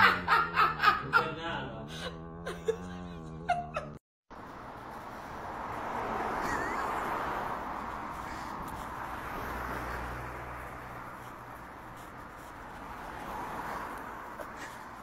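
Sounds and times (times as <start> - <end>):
car tyre noise passing: 4.3 - 15.0.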